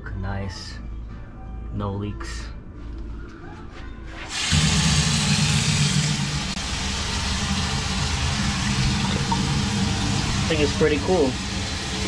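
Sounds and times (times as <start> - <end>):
water running into steel sink: 4.3 - 12.0.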